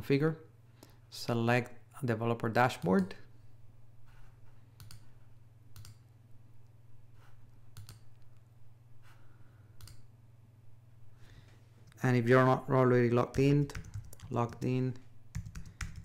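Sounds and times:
low electrical hum: 0:00.0 - 0:16.0
computer mouse clicks: 0:04.8 - 0:05.1, 0:05.7 - 0:06.0, 0:07.7 - 0:08.5, 0:09.8 - 0:10.1.

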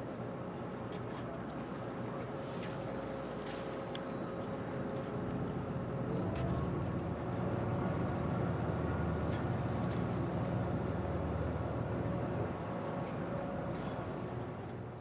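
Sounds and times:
boat engines revving: 0:05.4 - 0:14.9.

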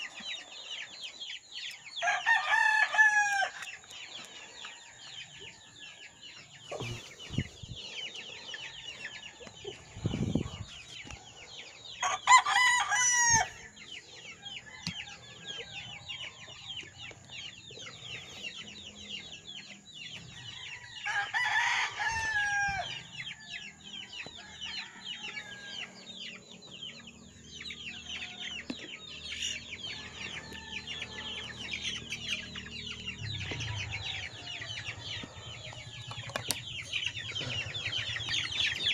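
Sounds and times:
chicks peeping: 0:00.0 - 0:38.9
rooster crowing: 0:02.0 - 0:03.7, 0:12.0 - 0:13.7, 0:20.5 - 0:23.0.

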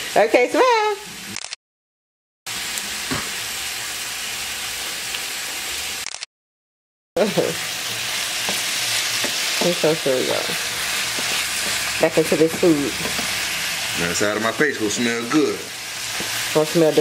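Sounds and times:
food sizzling in a frying pan: 0:02.5 - 0:06.0, 0:07.2 - 0:17.0
wooden spoon stirring pan: 0:07.8 - 0:16.6.

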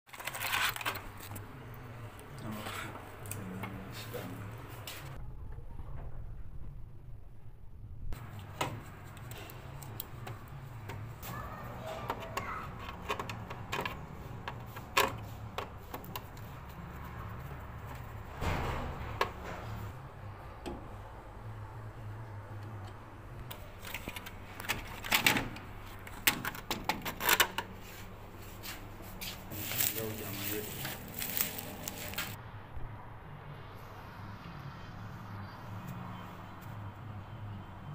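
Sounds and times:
plastic parts clicking and knocking: 0:12.1 - 0:16.4, 0:23.5 - 0:27.7.

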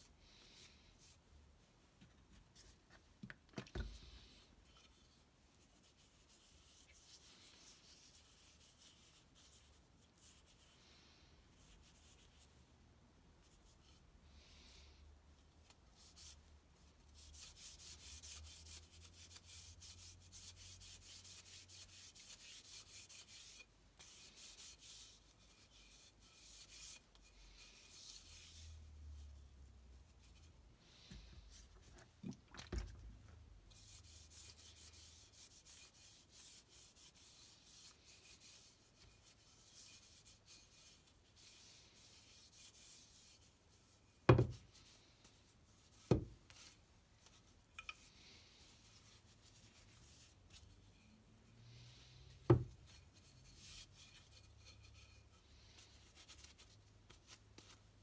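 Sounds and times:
steel wool scratching wood: 0:17.2 - 0:29.3, 0:33.7 - 0:44.3, 0:47.4 - 0:56.6.

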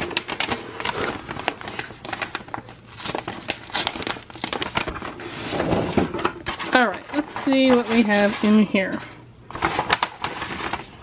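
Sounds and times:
paper envelope tearing: 0:00.0 - 0:05.8, 0:09.5 - 0:11.0.

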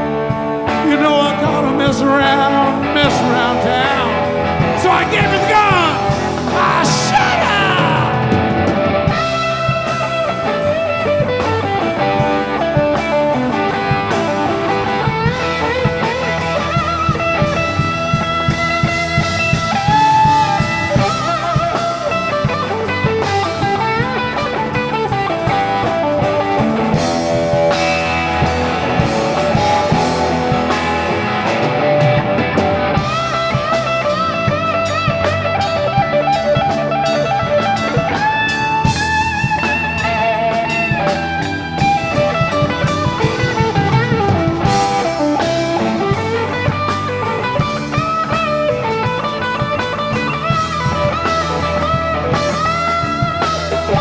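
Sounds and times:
drum kit: 0:00.0 - 0:54.0
electric guitar lead: 0:00.0 - 0:54.0.

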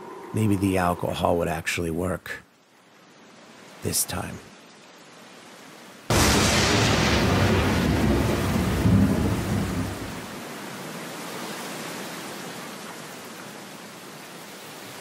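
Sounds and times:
thunder rumbling: 0:06.1 - 0:10.3
rain hissing: 0:06.1 - 0:10.5.

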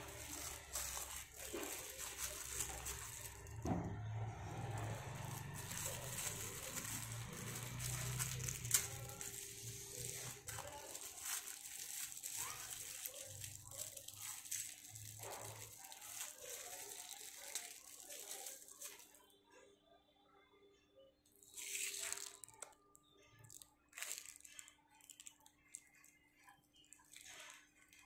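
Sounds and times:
plastic bag crinkling: 0:00.0 - 0:19.3, 0:21.3 - 0:28.0.

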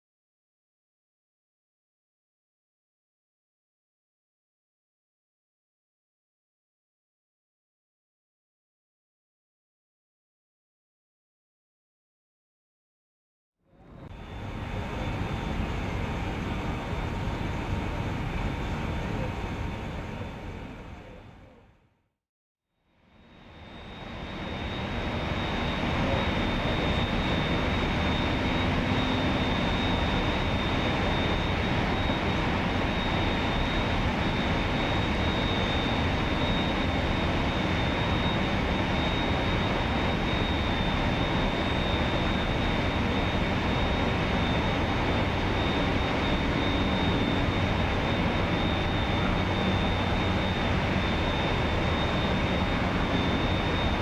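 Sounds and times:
high-pitched whine: 0:13.7 - 0:21.6, 0:23.0 - 0:54.0.

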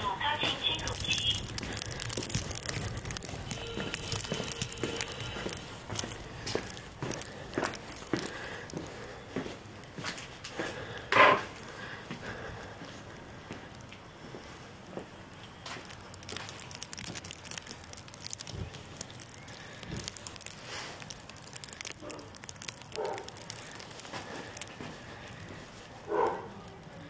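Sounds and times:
light crackle of clicks: 0:00.6 - 0:09.0, 0:15.3 - 0:27.0
dog barking: 0:23.0 - 0:23.4, 0:26.1 - 0:26.6.

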